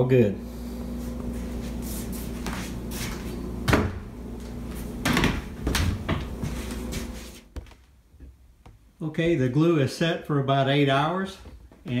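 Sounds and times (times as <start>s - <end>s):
steady low hum: 0.0s - 9.5s.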